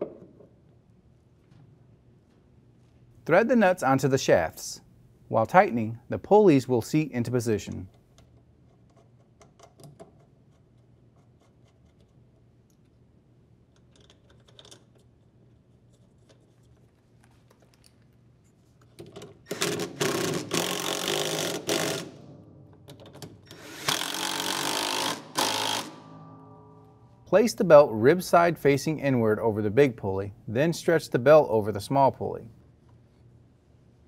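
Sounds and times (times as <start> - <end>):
cordless drill running: 19.5 - 22.2, 23.5 - 26.0.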